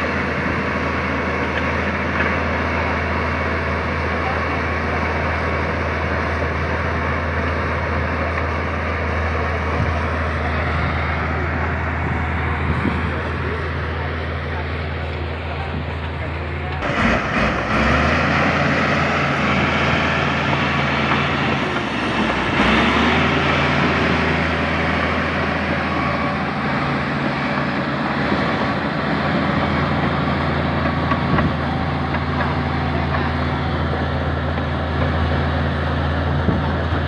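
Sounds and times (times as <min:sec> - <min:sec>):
bulldozer diesel engine under load: 0:00.0 - 0:37.0.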